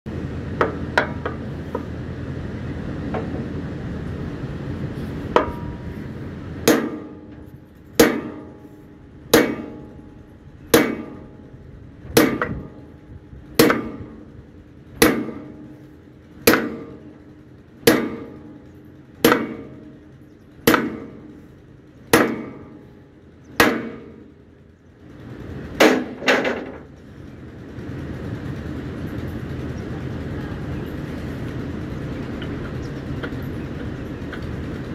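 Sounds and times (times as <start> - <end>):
steady rushing noise: 0.1 - 34.9
hammer striking metal: 5.4 - 5.8, 6.6 - 7.4, 8.0 - 10.0, 10.7 - 11.4, 12.1 - 12.8, 13.6 - 14.1, 15.0 - 15.7, 16.4 - 17.0, 17.8 - 18.4, 19.2 - 19.8, 20.6 - 21.3, 22.1 - 22.8, 23.6 - 24.2, 25.8 - 26.8.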